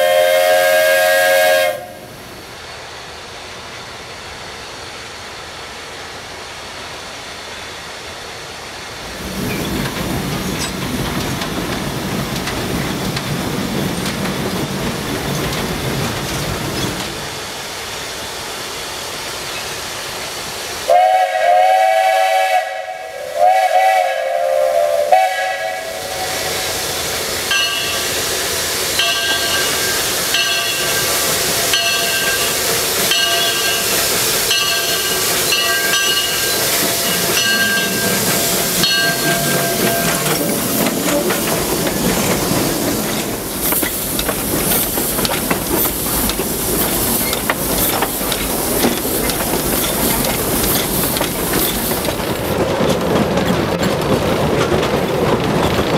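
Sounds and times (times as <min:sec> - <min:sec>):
steam locomotive whistle: 0:00.0 - 0:02.2, 0:20.8 - 0:26.9, 0:29.0 - 0:41.3
steam hissing from cylinder cocks: 0:09.0 - 0:52.6
locomotive bell ringing: 0:27.5 - 0:28.3, 0:28.9 - 0:40.8.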